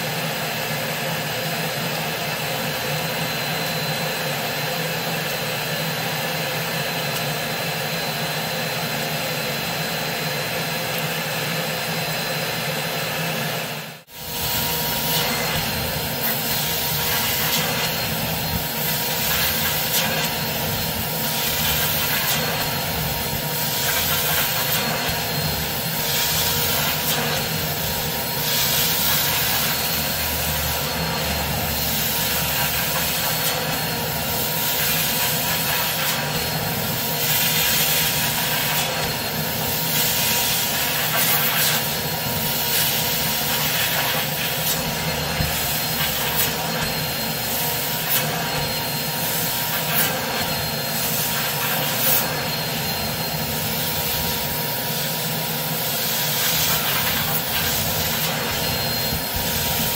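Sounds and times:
carpet cleaning machine whine: 0:00.0 - 0:59.9
spray and suction hiss: 0:14.2 - 0:54.3, 0:55.8 - 0:59.9.

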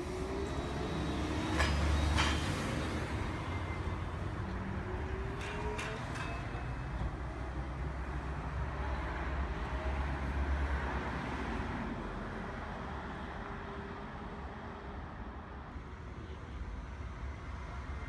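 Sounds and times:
trolleybus moving off: 0:00.0 - 0:10.3.

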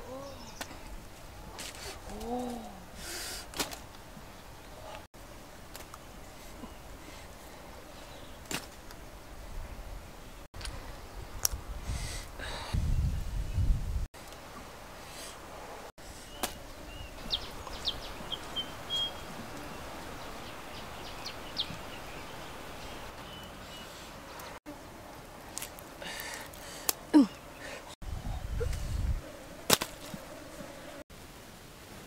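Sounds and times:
steady outdoor hiss: 0:00.0 - 0:32.0
fishing net rustling and clicking: 0:03.4 - 0:04.0
bird chirps: 0:16.2 - 0:24.5.

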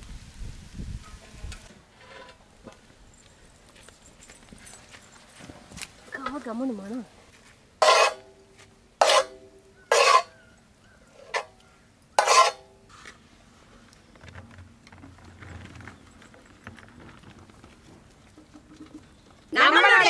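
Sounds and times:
ladle scraping pan: 0:07.8 - 0:08.3, 0:09.0 - 0:10.4, 0:12.2 - 0:13.2
metal ladle clanking on iron pan: 0:07.8 - 0:08.3, 0:12.2 - 0:12.7.

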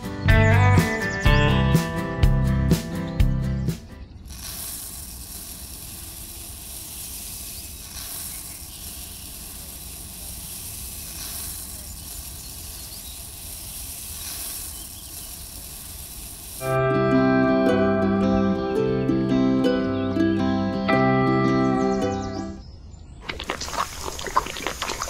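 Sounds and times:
steady hiss: 0:04.2 - 0:16.8.

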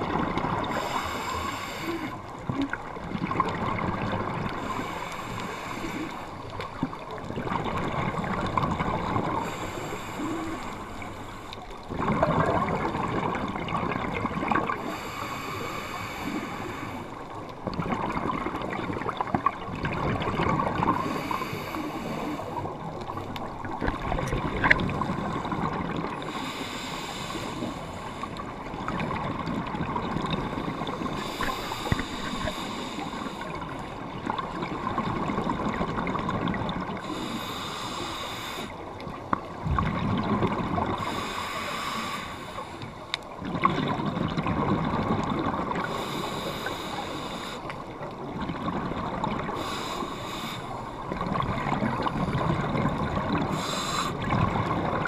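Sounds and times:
exhaust bubbles gurgling: 0:00.0 - 0:11.1, 0:11.8 - 0:15.0, 0:17.6 - 0:26.3, 0:28.4 - 0:32.5, 0:33.2 - 0:37.3, 0:39.1 - 0:41.3, 0:43.4 - 0:46.5, 0:47.9 - 0:49.7, 0:50.8 - 0:55.0
regulator breathing hiss: 0:00.7 - 0:02.2, 0:04.6 - 0:06.4, 0:09.4 - 0:11.6, 0:14.8 - 0:17.2, 0:21.0 - 0:22.7, 0:26.3 - 0:28.4, 0:31.2 - 0:33.8, 0:37.0 - 0:38.8, 0:41.0 - 0:43.0, 0:45.8 - 0:47.8, 0:49.6 - 0:51.0, 0:53.5 - 0:54.3.

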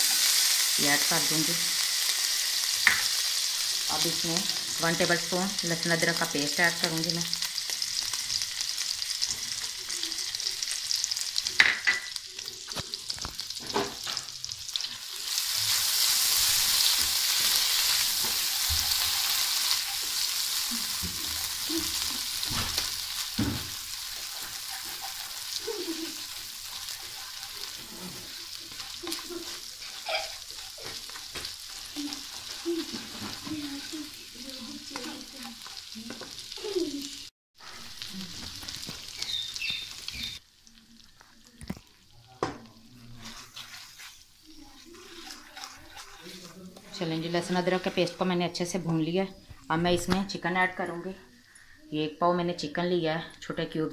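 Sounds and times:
paste sizzling in hot butter: 0:00.0 - 0:42.0, 0:42.8 - 0:48.8
spatula scraping a pan: 0:14.7 - 0:36.6, 0:43.0 - 0:48.8.

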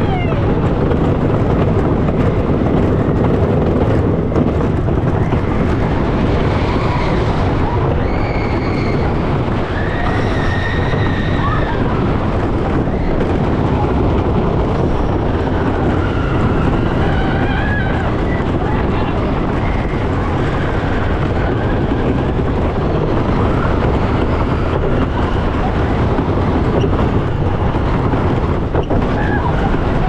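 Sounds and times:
roller coaster rumbling on wooden track: 0:00.0 - 0:30.0
wind buffeting microphone: 0:00.0 - 0:30.0.

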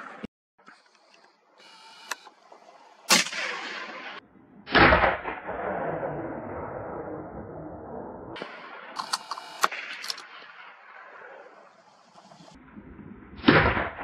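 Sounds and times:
gunshots with echo: 0:03.1 - 0:06.5, 0:13.4 - 0:14.0.

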